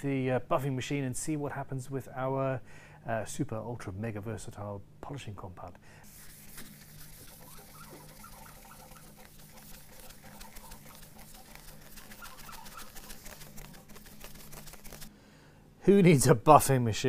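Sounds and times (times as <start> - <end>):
cloth rubbing with squeaks: 6.1 - 15.1.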